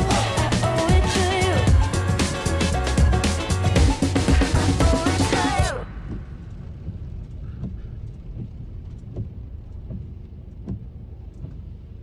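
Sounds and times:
soft rhythmic thumps: 0.1 - 12.0
car driving on wet road: 5.7 - 12.0.

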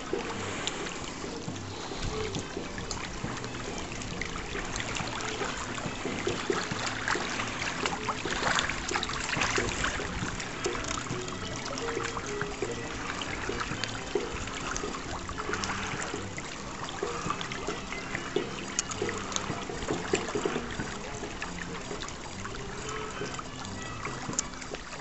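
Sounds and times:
lake water lapping at shore: 0.0 - 25.0.

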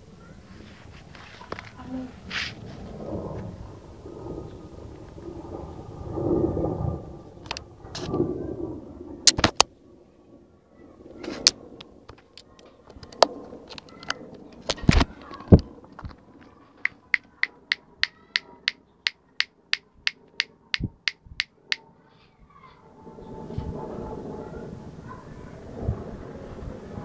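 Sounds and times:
sharp knocks and clicks: 16.8 - 21.8
steady short sharp clicks: 16.8 - 21.8.

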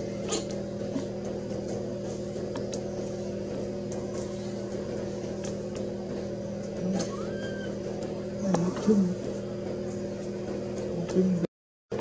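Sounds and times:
low machine hum: 0.0 - 12.0
short rising squeak: 7.0 - 7.8.

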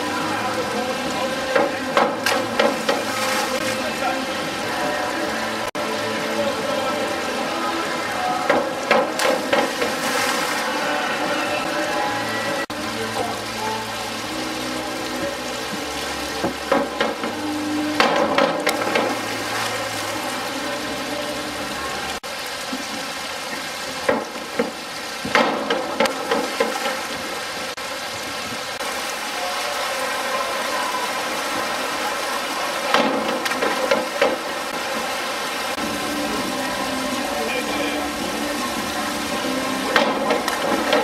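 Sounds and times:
pool water hissing: 0.0 - 41.0
divers splashing into water: 1.6 - 3.9, 8.5 - 11.4.

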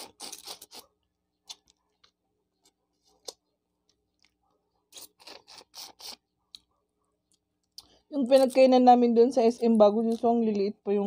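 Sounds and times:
crunchy shrimp eating: 0.0 - 10.7.

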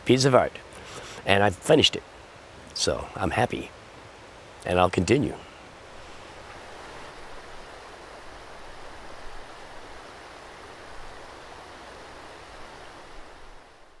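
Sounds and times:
river rushing: 0.0 - 14.0.

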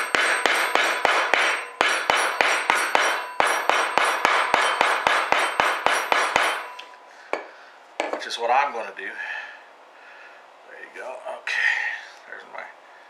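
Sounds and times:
hammer striking steel punch: 0.0 - 8.3.

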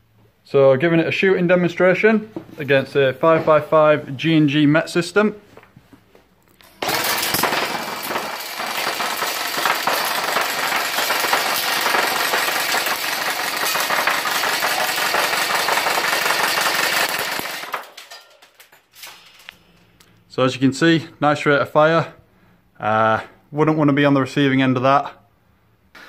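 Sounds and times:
airsoft gun rapid automatic fire: 6.8 - 18.0.

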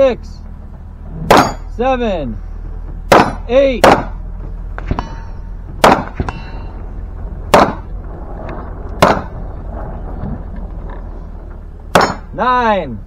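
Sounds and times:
rifle shots: 5.8 - 6.2, 7.5 - 7.9, 9.0 - 9.4.

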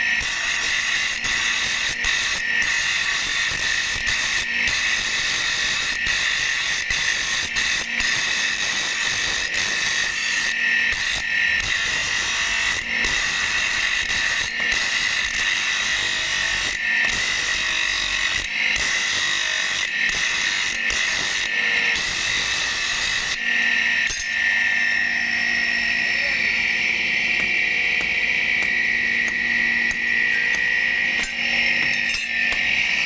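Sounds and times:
bench grinder grinding steel: 0.0 - 33.0.

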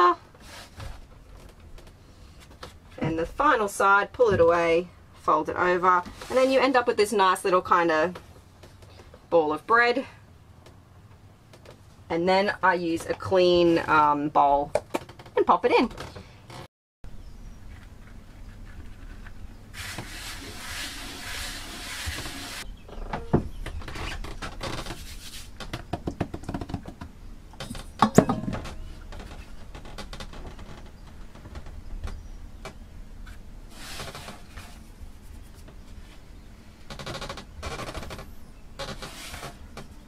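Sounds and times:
hands rubbing flour on board: 19.8 - 22.6, 25.0 - 25.5, 33.7 - 35.7
steady low hum: 22.2 - 38.9.

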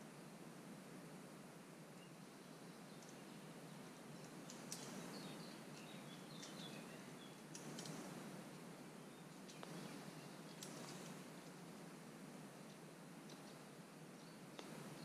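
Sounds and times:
faint steady hiss: 0.0 - 15.0
small birds chirping: 1.9 - 15.0
soft clicks: 7.5 - 8.1.

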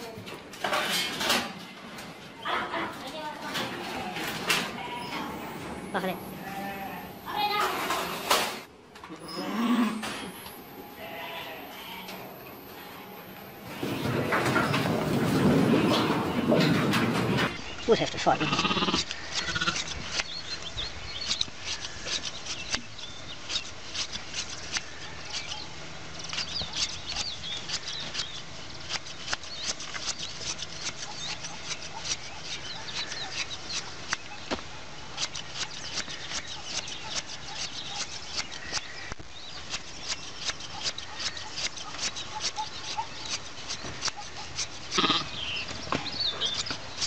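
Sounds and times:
shears snipping through fleece: 18.8 - 47.0.

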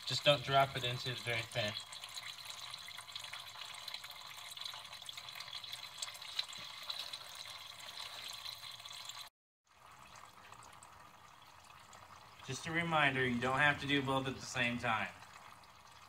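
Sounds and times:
fluid splashing into pan: 0.0 - 12.5
thin stream trickling into pan: 0.0 - 16.0.

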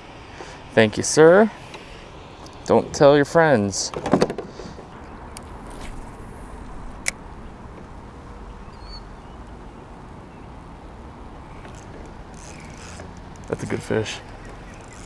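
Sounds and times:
low rumble and hiss: 0.0 - 15.0
faint bird chirp: 8.4 - 10.6, 13.8 - 15.0.

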